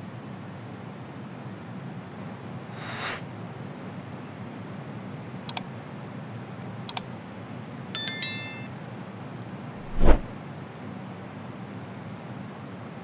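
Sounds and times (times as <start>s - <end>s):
bell-like chime: 8.0s - 8.8s
falling whoosh: 9.8s - 10.3s.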